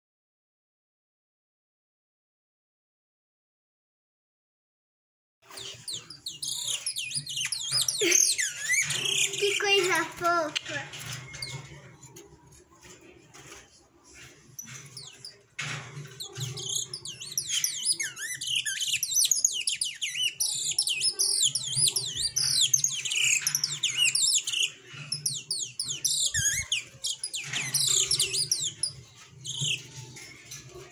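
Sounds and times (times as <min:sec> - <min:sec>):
canary singing trills: 0:05.4 - 0:12.8, 0:13.4 - 0:30.9.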